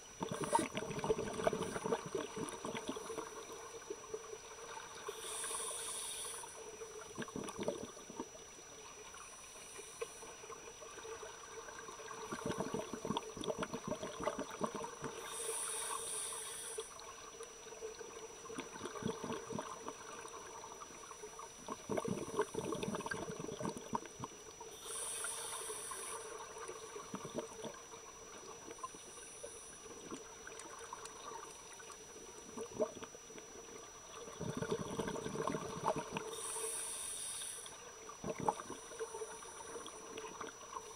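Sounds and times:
exhaled bubbles rumbling: 0.0s - 5.0s, 6.6s - 8.4s, 10.7s - 15.3s, 16.9s - 24.6s, 26.4s - 29.0s, 29.8s - 36.4s, 37.9s - 40.9s
regulator inhale hiss: 0.2s - 2.1s, 5.0s - 6.8s, 9.1s - 10.6s, 15.0s - 17.1s, 24.7s - 26.6s, 29.0s - 30.1s, 36.1s - 37.9s.

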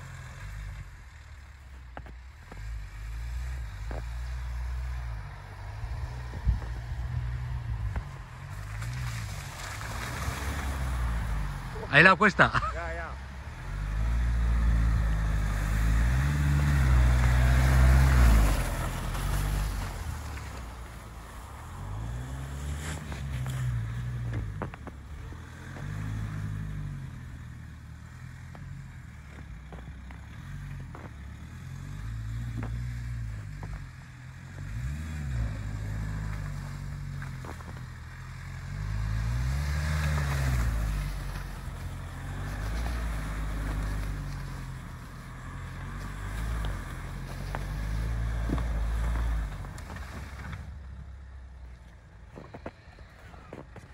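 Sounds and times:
car engine revving: 0.0s - 20.7s.

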